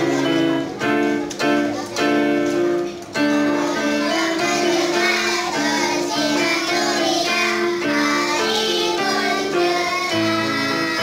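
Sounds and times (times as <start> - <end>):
girls singing in unison: 3.2 - 11.0.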